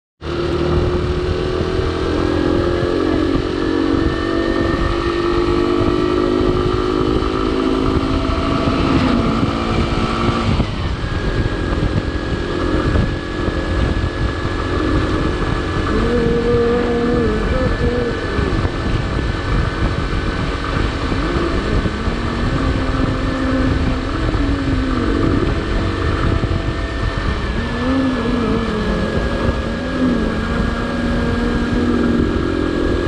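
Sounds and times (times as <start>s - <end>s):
motorcycle engine running: 0.2s - 33.0s
wind noise on microphone: 0.2s - 33.0s.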